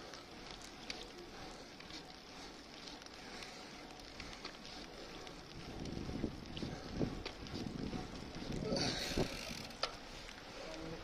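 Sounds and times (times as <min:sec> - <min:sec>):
bicycle tyres hissing on asphalt: 0:00.0 - 0:11.0
wind on microphone: 0:05.5 - 0:09.7.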